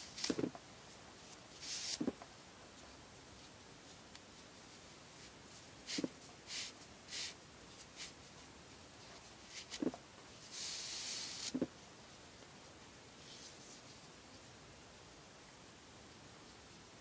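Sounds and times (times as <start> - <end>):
cord rustling through a knot: 0.0 - 11.7.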